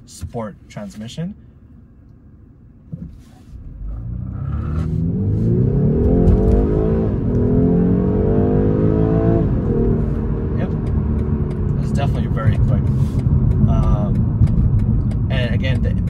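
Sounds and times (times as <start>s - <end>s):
car engine accelerating: 3.5s - 16.0s.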